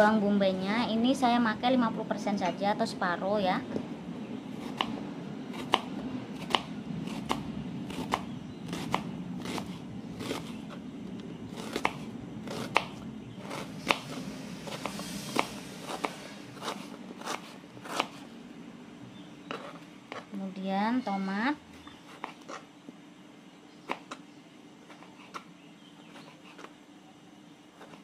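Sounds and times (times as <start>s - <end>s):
knife slicing onion: 4.6s - 10.8s, 11.5s - 18.2s, 24.9s - 26.8s.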